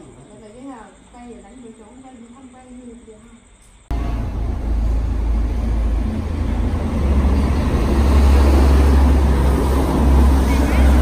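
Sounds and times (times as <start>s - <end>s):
bus engine rumbling: 3.9s - 11.0s.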